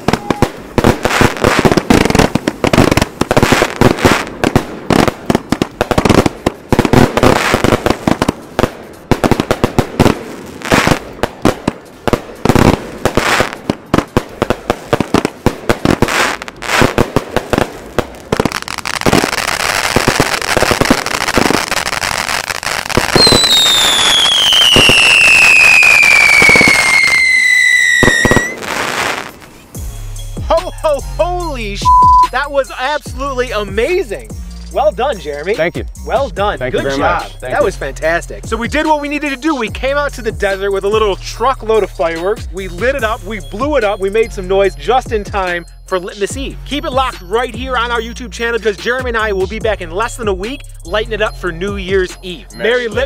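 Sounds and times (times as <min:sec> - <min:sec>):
falling firework whistle: 0:00.0 - 0:00.6, 0:23.1 - 0:29.3
fireworks bangs and crackle: 0:00.0 - 0:29.9.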